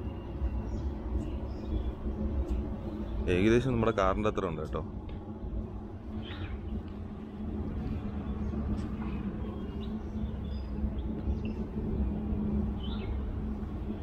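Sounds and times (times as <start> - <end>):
bird chirps: 0.0 - 4.4, 6.1 - 6.9, 8.1 - 13.3
constant hum: 0.0 - 14.0
low rumble: 0.0 - 14.0.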